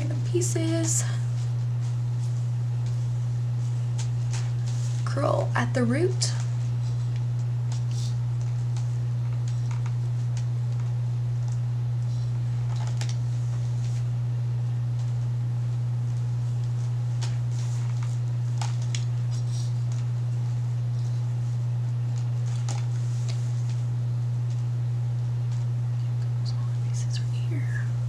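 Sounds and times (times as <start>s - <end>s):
steady low hum: 0.0s - 28.0s
hair rustling and clicking: 6.3s - 14.1s, 16.0s - 26.4s.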